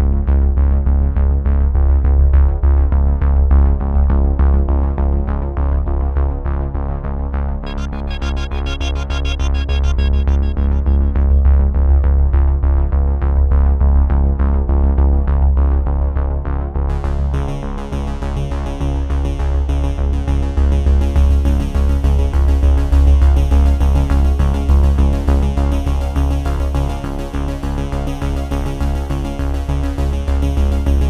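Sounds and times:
electronic music with pulsing beat: 7.6 - 12.2, 23.0 - 31.0.

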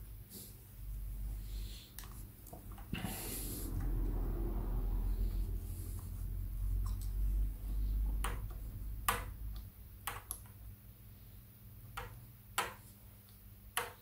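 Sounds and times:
low rumble: 2.6 - 9.9.

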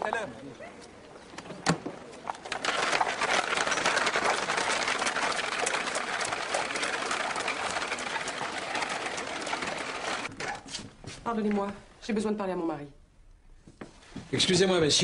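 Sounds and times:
horse-drawn carriage rattling: 2.2 - 10.6.

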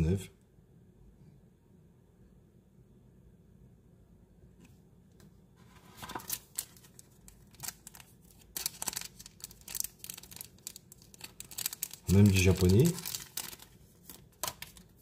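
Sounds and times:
plastic sleeve crinkling: 6.0 - 15.0.

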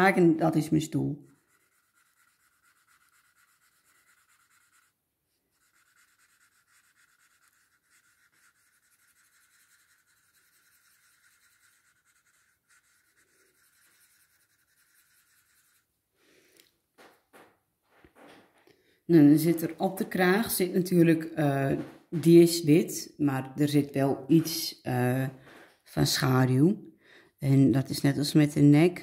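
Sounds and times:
pencil scratching on paper: 1.1 - 15.9.

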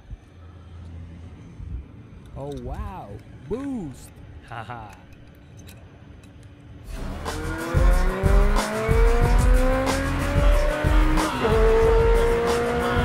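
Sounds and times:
music with heavy beat: 6.9 - 13.0
race car engine accelerating: 6.9 - 13.0.

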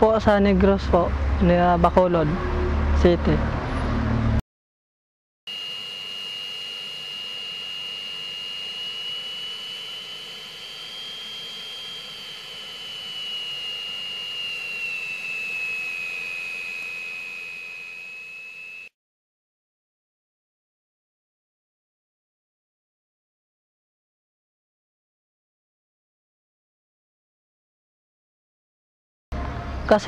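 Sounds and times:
jet engine whine: 5.5 - 18.9.

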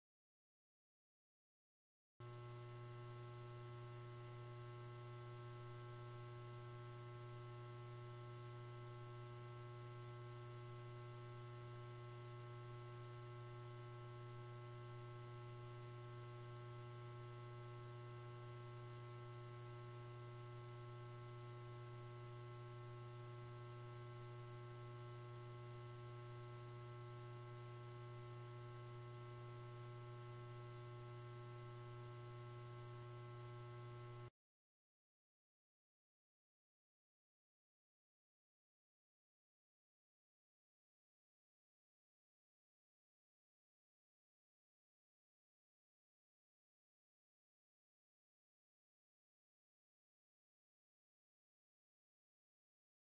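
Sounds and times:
steady low hum: 2.2 - 34.3.

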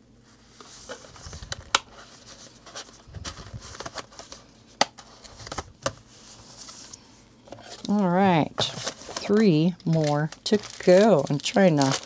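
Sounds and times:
cardboard folder rustling: 0.4 - 12.0.

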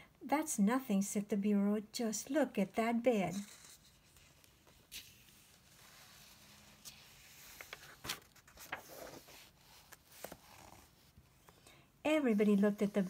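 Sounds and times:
book page turning: 3.3 - 11.6
paper taps and crinkles: 6.8 - 9.3.

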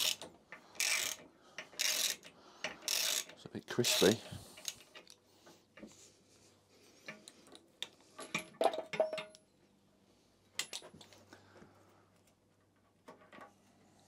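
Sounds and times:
tools clinking against metal: 1.6 - 5.1.

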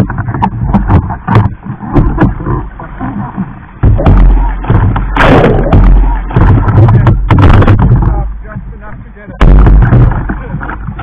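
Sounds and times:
muffled water rumbling: 0.0 - 11.0
water slapping on kayak: 0.0 - 11.0
hissing water surge: 1.5 - 7.8.

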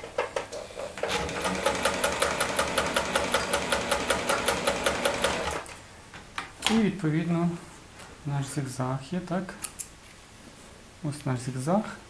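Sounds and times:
sewing machine motor humming: 1.0 - 5.7.

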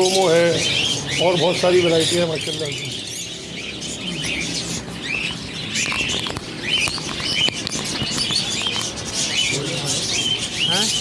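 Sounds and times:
caged birds chirping: 0.0 - 11.0
sharp clicks: 5.3 - 9.0.

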